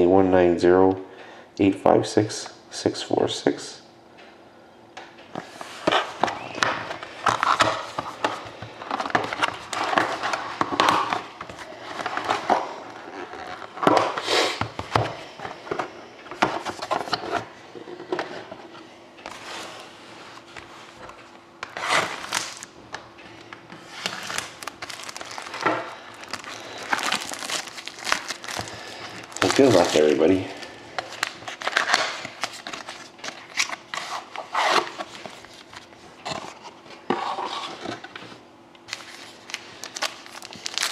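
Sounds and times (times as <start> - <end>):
plastic wrappers crinkling: 21.8 - 22.7, 23.9 - 35.9, 38.9 - 40.9.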